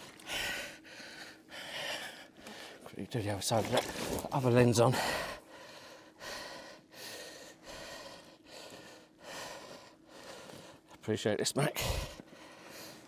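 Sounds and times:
man breathing hard: 0:00.0 - 0:02.9, 0:04.9 - 0:11.0, 0:11.7 - 0:13.0.

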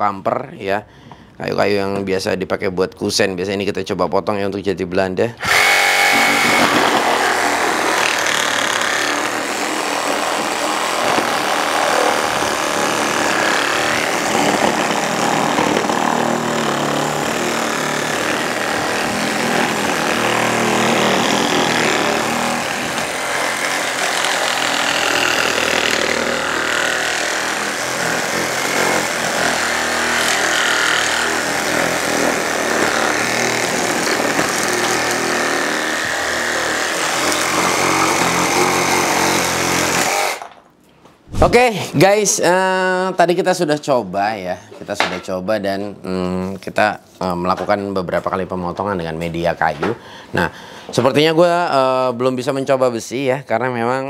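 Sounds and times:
reciprocating saw cutting wood: 0:05.4 - 0:40.5.

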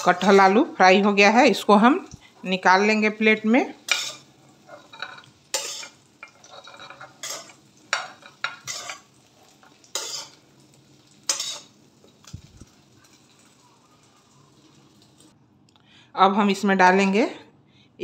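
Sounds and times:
metal spoon scraping a pan: 0:00.0 - 0:00.7, 0:03.8 - 0:10.4, 0:11.2 - 0:12.4.

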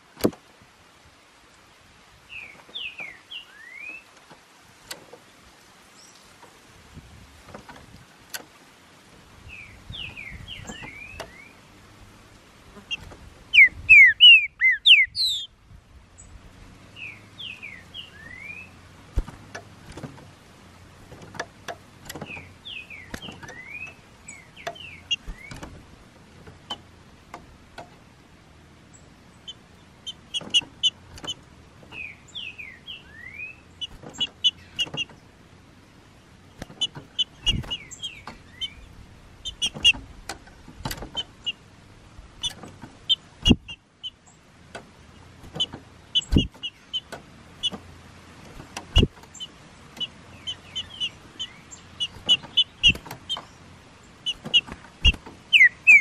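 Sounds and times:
birds singing whistled phrases: 0:02.3 - 0:04.1, 0:09.4 - 0:11.7, 0:12.9 - 0:15.6, 0:16.2 - 0:18.8, 0:22.1 - 0:25.7, 0:28.9 - 0:35.2, 0:36.5 - 0:40.0, 0:45.2 - 0:47.8, 0:49.0 - 0:56.0
sharp clicks: 0:21.1 - 0:25.8, 0:52.0 - 0:53.5.

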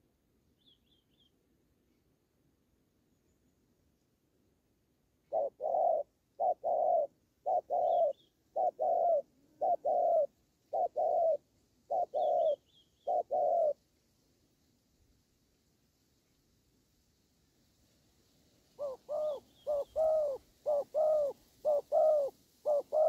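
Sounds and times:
faint high bird chirps: 0:00.5 - 0:01.4, 0:05.2 - 0:13.8, 0:18.8 - 0:23.0
dove cooing: 0:05.3 - 0:13.8, 0:18.8 - 0:23.0.

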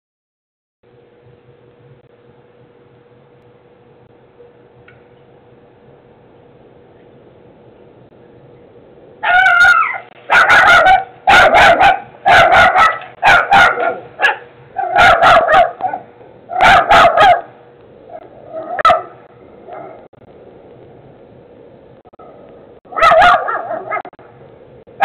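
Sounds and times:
dog barking loudly: 0:09.2 - 0:17.6, 0:18.5 - 0:20.1, 0:22.2 - 0:24.2.

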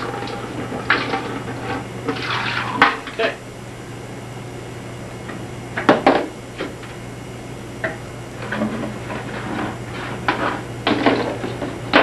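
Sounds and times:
drain pipe handling noises: 0:00.0 - 0:03.4.

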